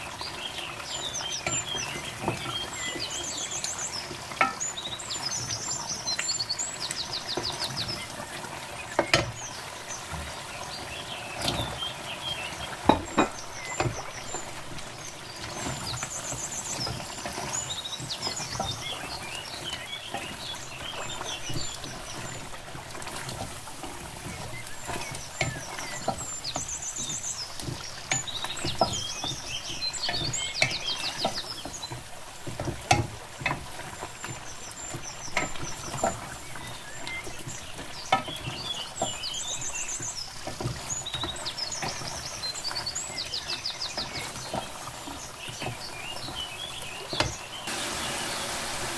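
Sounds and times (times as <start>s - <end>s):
sauce sizzling and bubbling: 0.0s - 48.9s.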